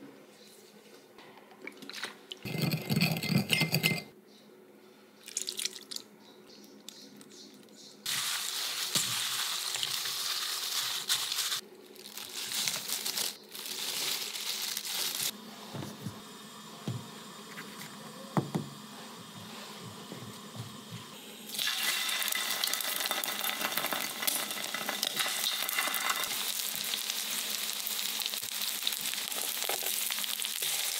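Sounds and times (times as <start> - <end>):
plastic glove crinkling: 8.1 - 15.4, 26.1 - 30.9.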